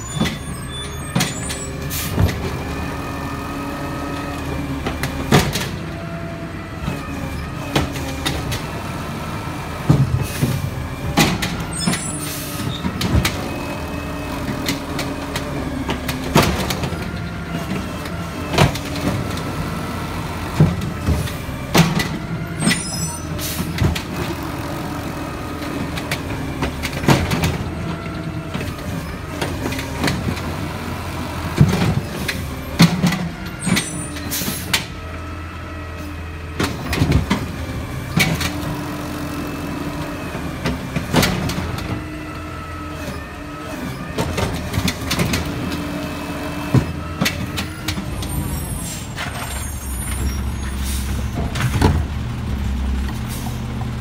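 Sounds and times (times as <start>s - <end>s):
garbage truck engine droning: 0.0s - 54.0s
carts banging against hopper: 14.4s - 19.6s, 20.4s - 24.4s, 25.7s - 28.7s, 31.4s - 34.9s, 40.6s - 42.0s.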